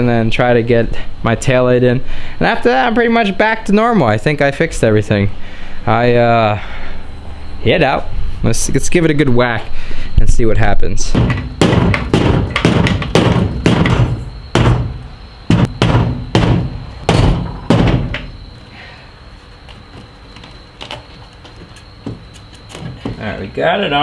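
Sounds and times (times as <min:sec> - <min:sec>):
hammer beating sheet metal: 0:11.1 - 0:18.4.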